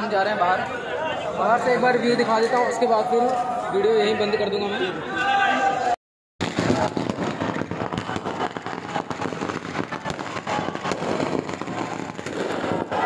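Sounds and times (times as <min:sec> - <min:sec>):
fireworks crackling: 0:06.4 - 0:13.0.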